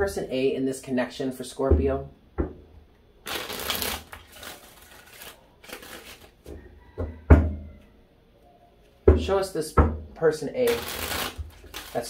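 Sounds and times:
cards being shuffled: 3.3s - 6.4s, 10.7s - 12.0s.

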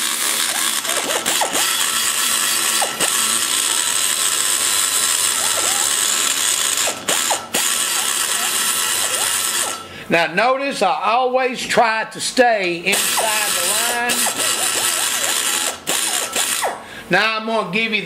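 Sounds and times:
die grinder grinding metal: 0.0s - 10.0s, 12.9s - 16.8s.

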